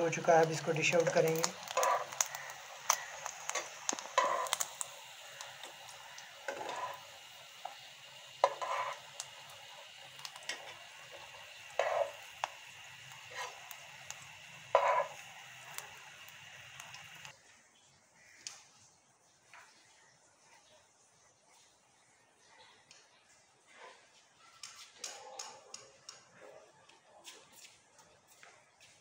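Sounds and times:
onion rings sizzling in oil: 0:00.0 - 0:17.6
metal spatula scraping pan: 0:01.7 - 0:02.2, 0:04.2 - 0:04.6, 0:06.5 - 0:07.0, 0:08.4 - 0:09.0, 0:11.8 - 0:12.2, 0:14.7 - 0:15.2.

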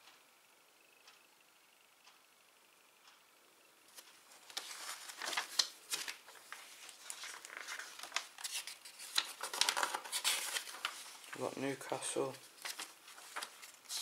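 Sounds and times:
sharp paper snaps: 0:03.9 - 0:11.4
pages rustling and crinkling: 0:03.9 - 0:14.0.

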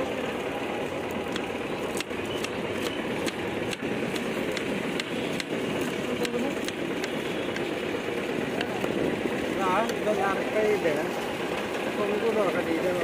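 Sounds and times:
street noise: 0:00.0 - 0:13.0
knife chopping on wooden board: 0:01.3 - 0:07.6.

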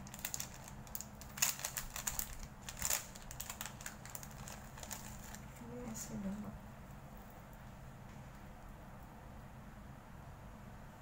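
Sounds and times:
crinkles and clicks of handled items: 0:00.0 - 0:05.6
faint low hum: 0:00.0 - 0:11.0.

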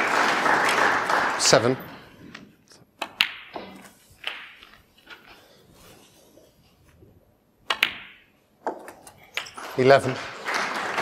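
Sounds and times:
snooker balls clicking: 0:02.3 - 0:05.4, 0:07.6 - 0:10.4.

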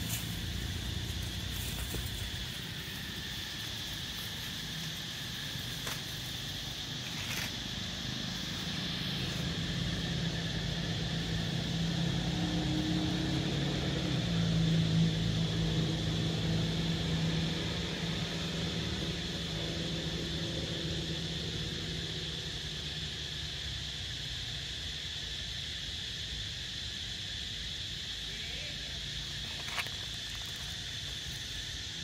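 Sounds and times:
high insect drone: 0:00.0 - 0:32.0
vehicle engine passing: 0:07.7 - 0:22.5.

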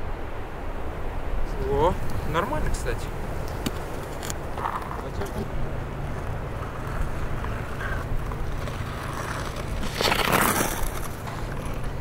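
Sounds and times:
ice skate blade scraping ice: 0:03.7 - 0:12.0.

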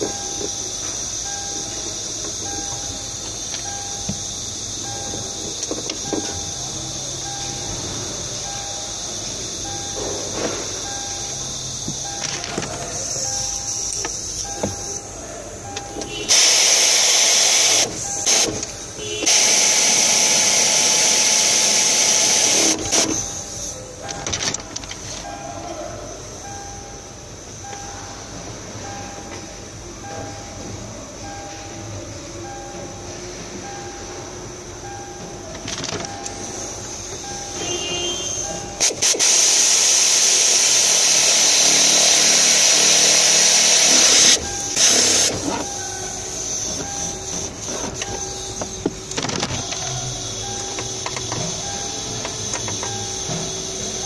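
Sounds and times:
loud steady hiss: 0:00.0 - 0:28.9, 0:29.5 - 0:54.0
compressed-air tool hissing: 0:16.2 - 0:23.8, 0:37.6 - 0:54.0.

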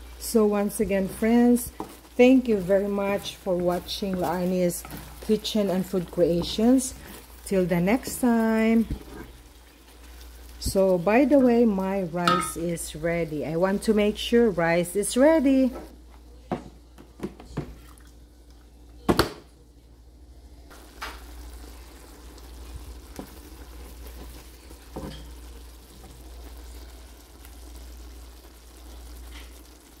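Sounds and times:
sauce simmering in a wok: 0:00.0 - 0:12.4, 0:20.1 - 0:30.0.

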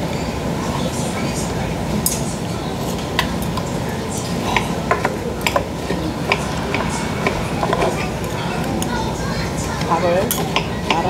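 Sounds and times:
low background hum: 0:00.0 - 0:11.0
metal spoon clinking on bowls: 0:04.2 - 0:09.0, 0:09.8 - 0:11.0.

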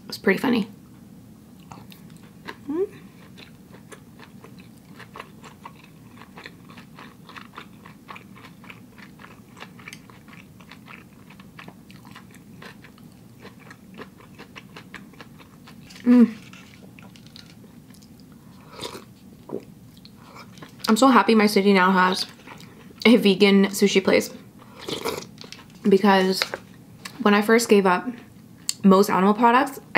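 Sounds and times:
chewing sushi: 0:01.6 - 0:20.9.

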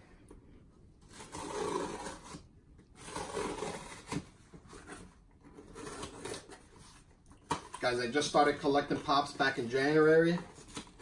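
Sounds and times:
blade scraping packing tape: 0:01.1 - 0:02.4, 0:03.0 - 0:04.2.

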